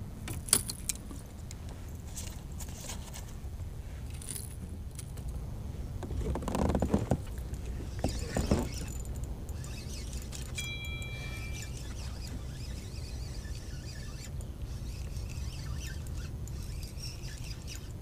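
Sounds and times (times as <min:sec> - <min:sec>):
low steady rumble: 0:03.3 - 0:18.0
fishing tackle clicking and rattling: 0:07.4 - 0:18.0
spinning reel cranking: 0:07.9 - 0:18.0.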